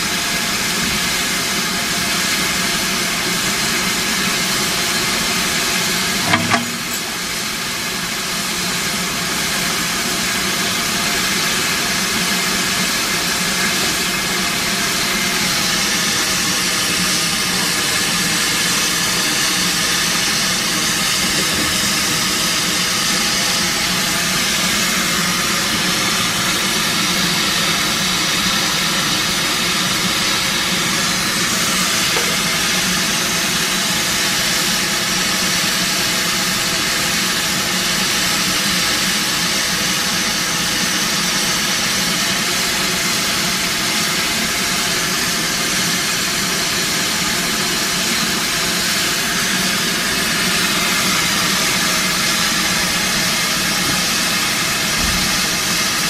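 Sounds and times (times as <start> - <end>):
steam hissing: 0.0 - 56.0
sharp metallic knocks: 6.2 - 7.3, 32.1 - 32.6.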